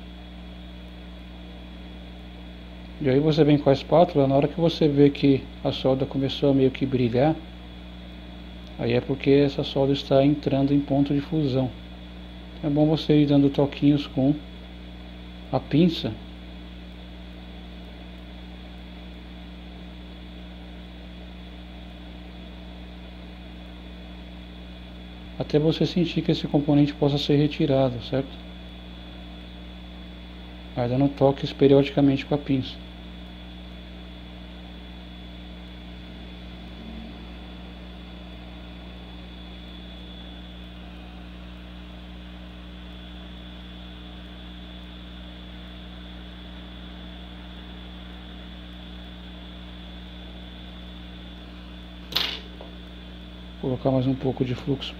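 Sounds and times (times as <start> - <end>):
faint high whine: 0.0 - 54.9
hot-air rework station blowing: 0.0 - 54.9
low hum: 0.0 - 54.9
hot air blower hissing: 24.7 - 44.7.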